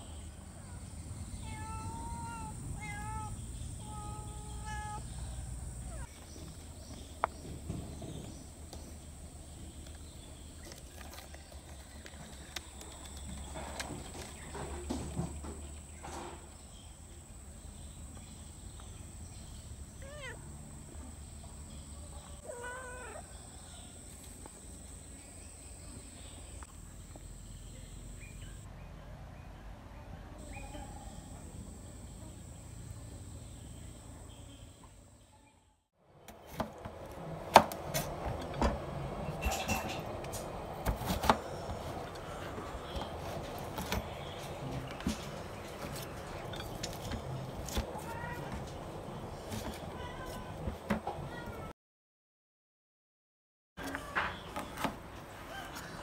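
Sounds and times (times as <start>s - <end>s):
cat meowing: 1.4s - 5.2s, 22.4s - 23.3s.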